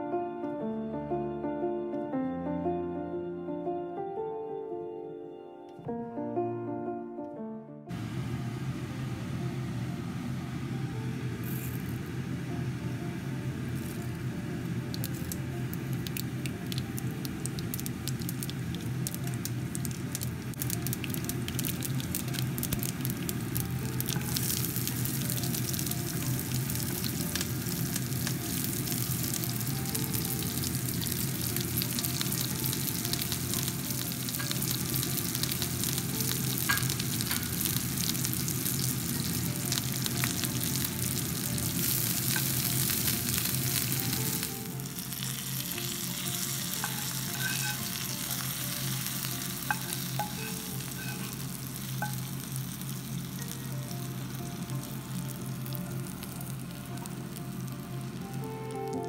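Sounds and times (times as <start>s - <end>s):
seeds crackling in hot oil: 11.4s - 12.2s, 13.6s - 59.0s.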